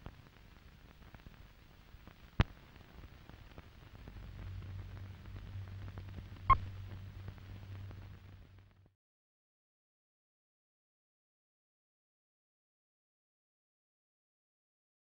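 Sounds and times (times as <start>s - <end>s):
film hiss and dust crackle: 0.0s - 9.0s
low hum: 3.2s - 8.9s.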